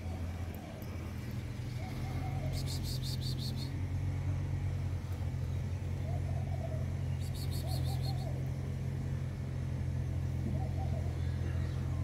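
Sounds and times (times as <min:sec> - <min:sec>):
vehicle engine idling: 0:00.0 - 0:12.0
rapid high chirps: 0:02.5 - 0:03.8, 0:07.2 - 0:08.4
faint wavering call: 0:06.1 - 0:08.4.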